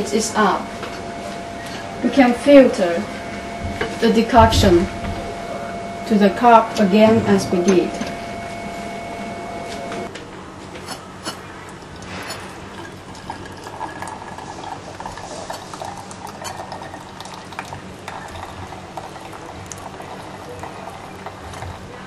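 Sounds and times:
liquid pouring into a cup: 11.7 - 22.0.

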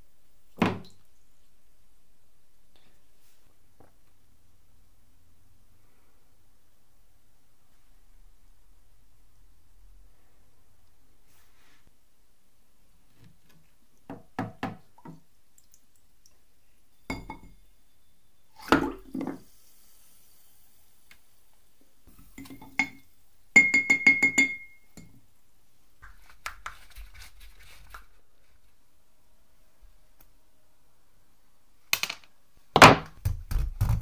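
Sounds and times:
metal knocking on glass jars: 17.1 - 17.6, 23.6 - 25.1.

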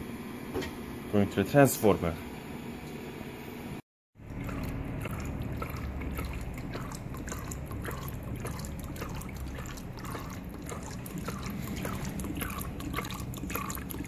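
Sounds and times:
oil trickling into bucket: 4.2 - 14.0
drops pattering and splashing: 4.3 - 14.0.

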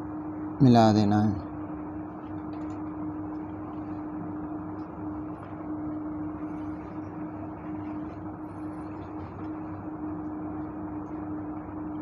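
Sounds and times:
constant low hum: 0.0 - 12.0.

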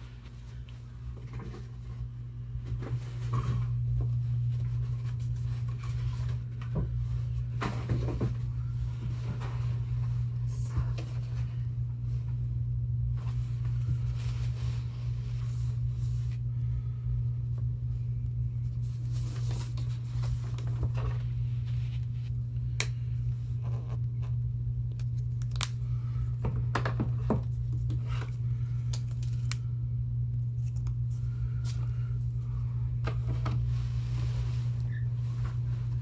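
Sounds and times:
low electrical hum: 0.0 - 36.0.

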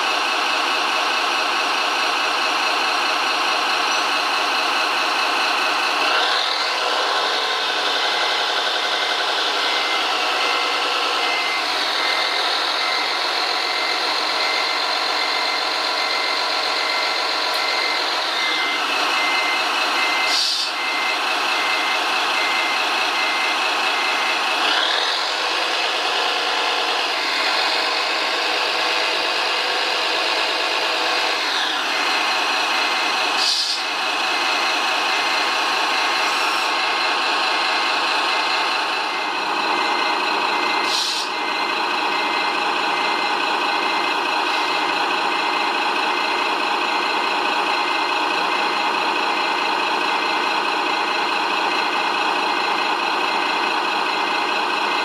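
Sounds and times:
electronic warning beep: 6.2 - 36.6.

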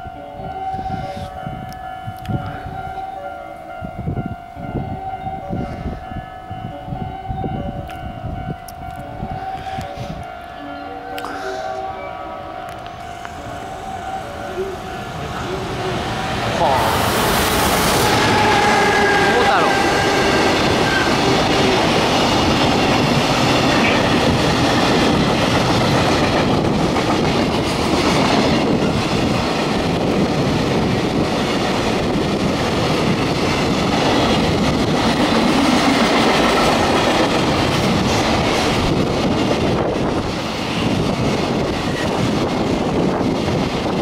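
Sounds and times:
freight train wheels rumbling: 11.2 - 44.0
clickety-clack over rail joints: 20.7 - 44.0.

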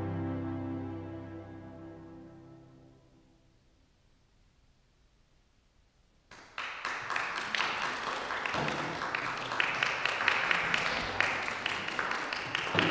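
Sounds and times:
audience applause: 6.3 - 12.9.

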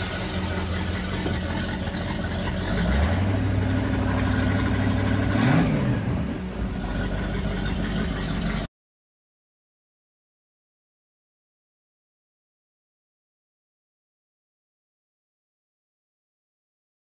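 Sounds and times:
boat engine revving and idling: 0.0 - 8.7.

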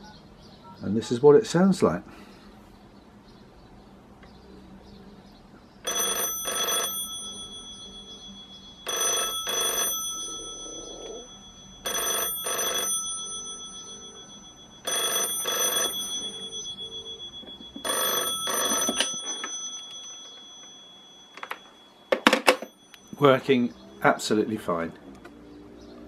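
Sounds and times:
telephone ringing: 5.8 - 25.4.

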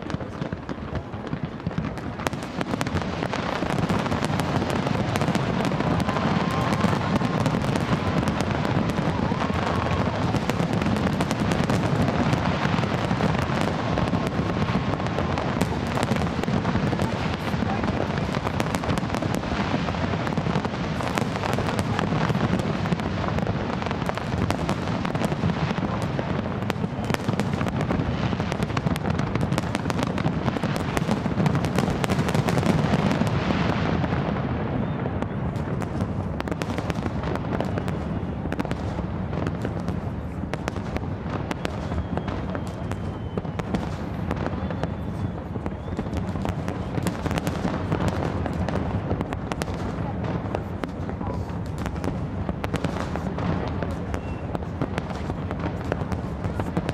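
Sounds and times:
fireworks bangs rumbling: 0.0 - 56.9
fireworks crackling: 0.0 - 56.9.

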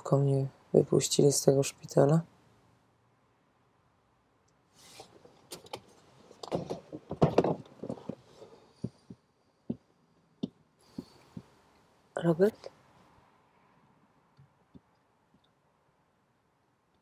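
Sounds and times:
clicks knocks and rustles: 5.0 - 9.8.

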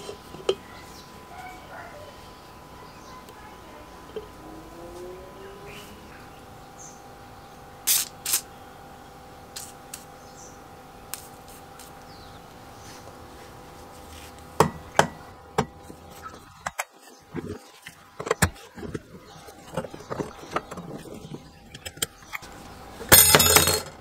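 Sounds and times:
metal parts clicking and clinking: 23.1 - 24.0.

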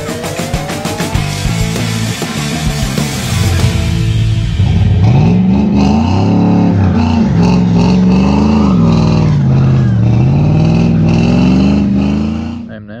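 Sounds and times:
rock music: 0.0 - 12.7
engine revving: 0.0 - 12.8.

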